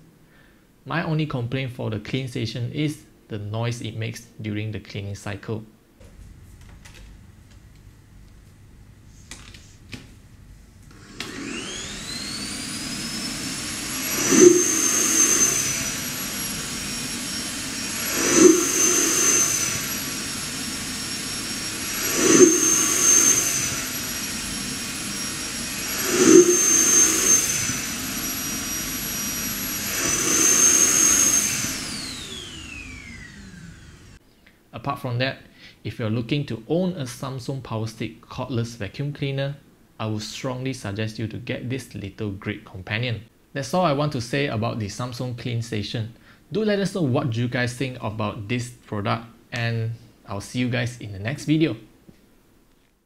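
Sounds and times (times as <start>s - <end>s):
suction motor whining: 6.0s - 34.2s.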